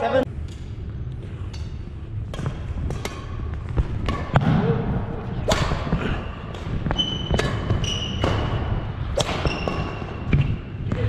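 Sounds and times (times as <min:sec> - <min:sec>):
rackets striking shuttlecock: 0:02.3 - 0:11.0
sneaker squeak: 0:06.2 - 0:11.0.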